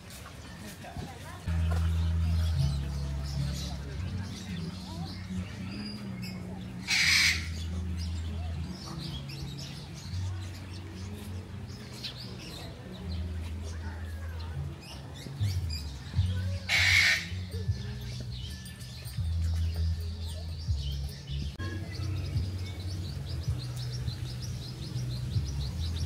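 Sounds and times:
small birds chirping: 0.3 - 26.0
soft background music: 0.6 - 26.0
parrots squawking: 6.8 - 7.6, 16.7 - 17.3.

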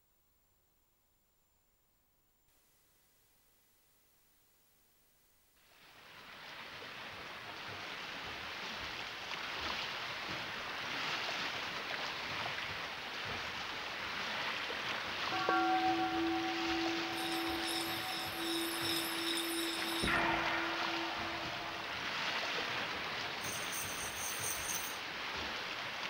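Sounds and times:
ringing bell-like tone: 15.3 - 25.0.

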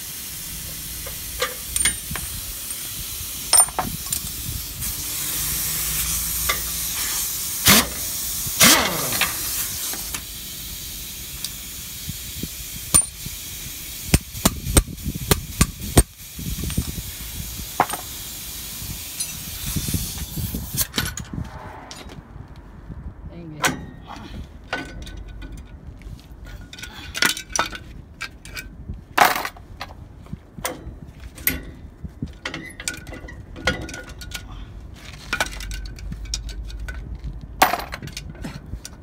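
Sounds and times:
steady hiss: 0.0 - 20.8
hand tools clicking on metal: 35.2 - 37.2.

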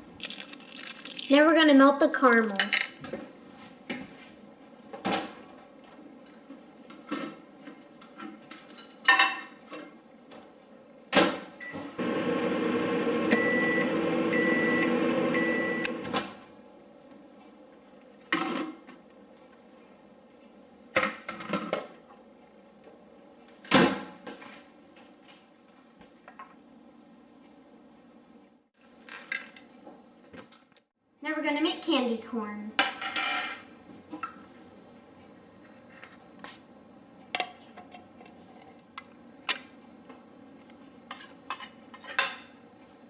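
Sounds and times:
microwave oven humming: 9.4 - 18.0.

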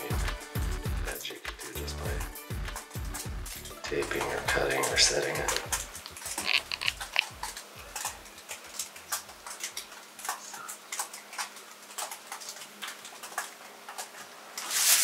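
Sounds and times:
roller clicking in wet resin: 4.0 - 15.0.

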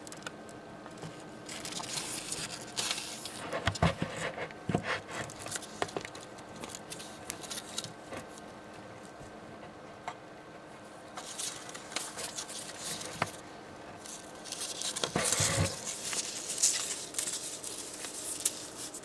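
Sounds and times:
newspaper rustling and crinkling: 1.5 - 8.2, 11.2 - 13.4, 14.0 - 19.0.

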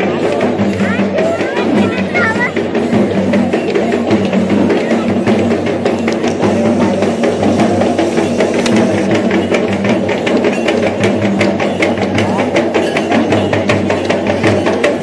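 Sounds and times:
drums beaten rapidly: 0.0 - 15.0.

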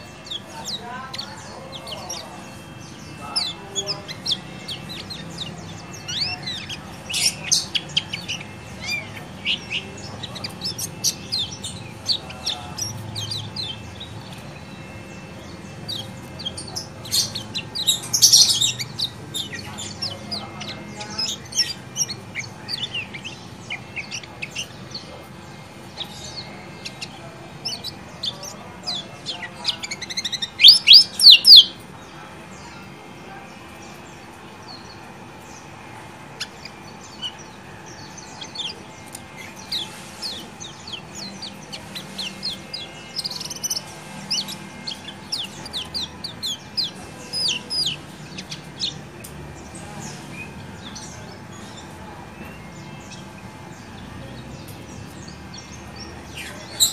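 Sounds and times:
bird chirping rapidly: 0.0 - 31.8, 36.4 - 51.8.

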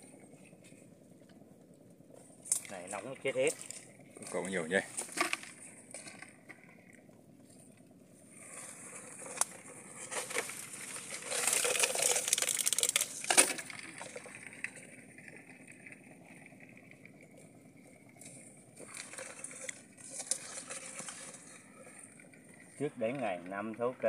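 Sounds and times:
crackling scratchy rattle: 0.0 - 24.0.

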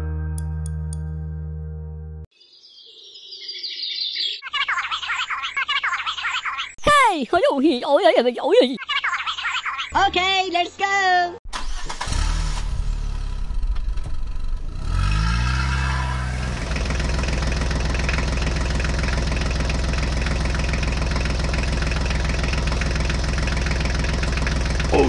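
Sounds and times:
tractor engine running: 11.5 - 25.0.

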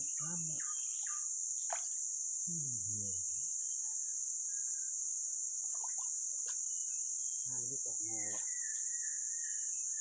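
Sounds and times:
insects droning: 0.0 - 10.0
man's low voice: 2.5 - 3.3.

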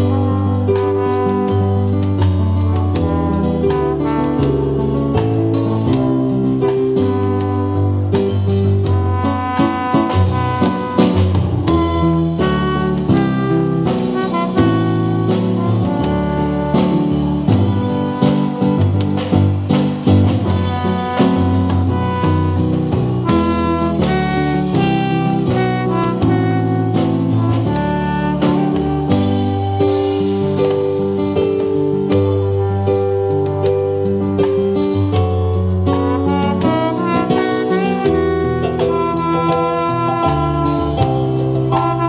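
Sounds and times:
drum beat: 0.0 - 32.9, 33.6 - 42.0
keyboard low notes: 0.0 - 42.0
trombone melody: 0.0 - 42.0.

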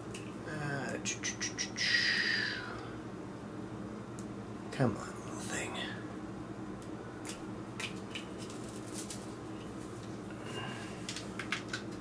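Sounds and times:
faint steady hum: 0.0 - 12.0
cable clicks and rustles: 7.8 - 10.2, 11.0 - 12.0.

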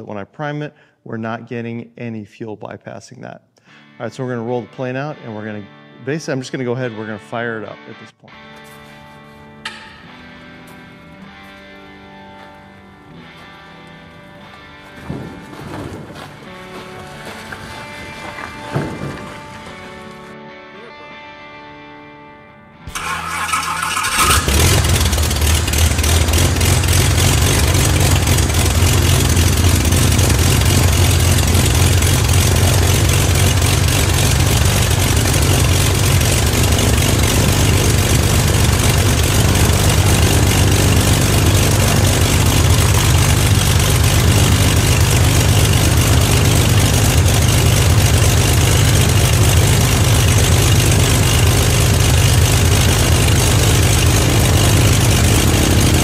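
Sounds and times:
aircraft engine idling: 22.9 - 56.0
starter motor cranking: 22.9 - 56.0.

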